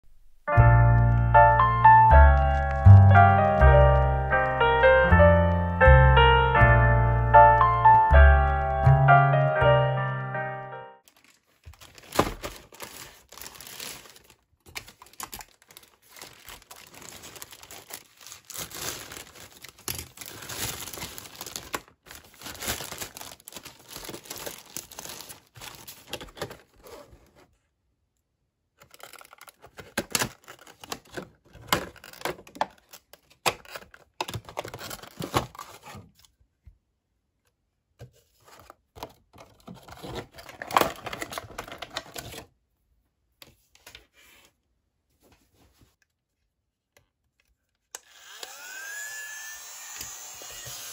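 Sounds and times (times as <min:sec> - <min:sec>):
plastic packaging crinkling and tearing: 0:02.3 - 0:04.1, 0:11.0 - 0:27.2, 0:28.8 - 0:36.3, 0:39.4 - 0:42.5
plastic clicks and rustles: 0:11.0 - 0:26.8, 0:28.8 - 0:36.4, 0:38.5 - 0:42.5.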